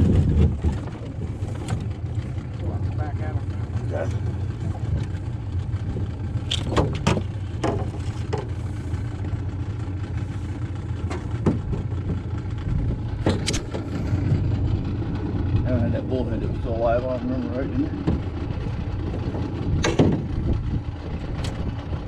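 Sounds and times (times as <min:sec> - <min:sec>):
boat motor idling: 0:00.0 - 0:22.0
knocks against metal hull: 0:11.1 - 0:12.2, 0:19.8 - 0:20.3.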